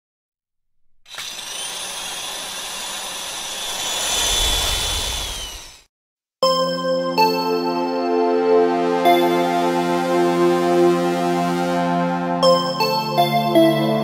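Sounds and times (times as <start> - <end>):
whining machine noise: 1.1 - 5.9
synthesizer music: 7.0 - 12.8.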